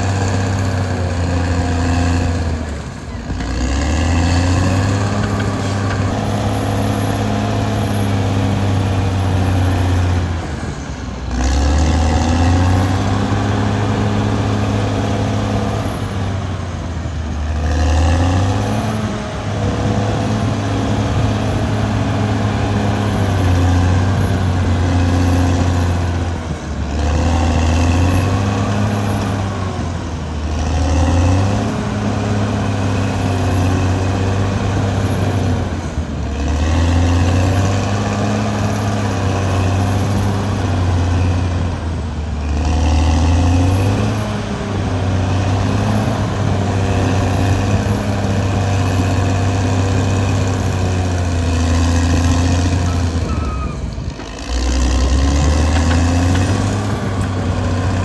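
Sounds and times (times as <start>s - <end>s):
bulldozer diesel engine running: 0.0s - 58.0s.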